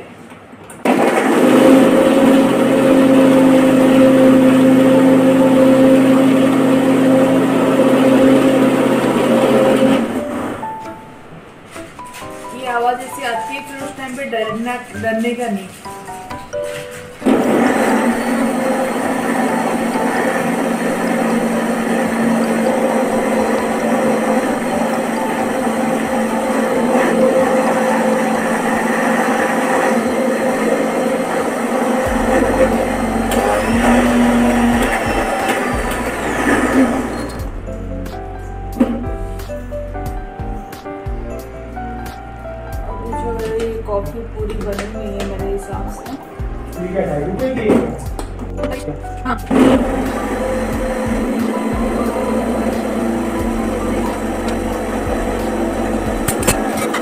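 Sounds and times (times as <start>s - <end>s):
electric blender running: 0.8s - 10.6s, 17.2s - 37.6s, 49.5s - 57.0s.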